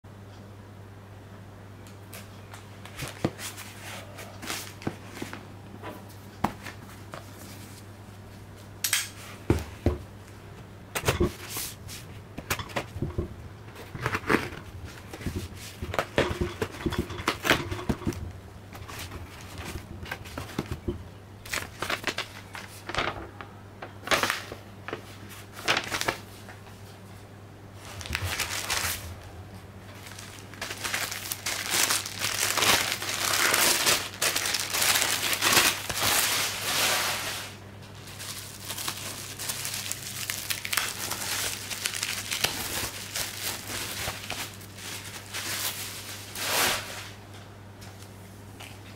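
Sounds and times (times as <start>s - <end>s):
rustles and clicks: 11.0s - 23.2s
plastic wrapping crinkling: 11.1s - 23.0s, 25.4s - 26.3s, 27.8s - 29.3s, 29.9s - 47.2s.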